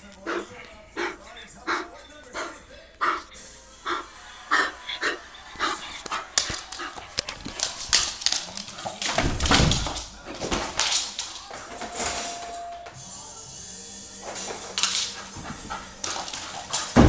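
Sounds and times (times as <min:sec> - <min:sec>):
dog barking and grunting: 0:00.0 - 0:07.8, 0:14.8 - 0:17.0
paws scrabbling on laminate floor: 0:04.8 - 0:11.9, 0:14.2 - 0:17.0.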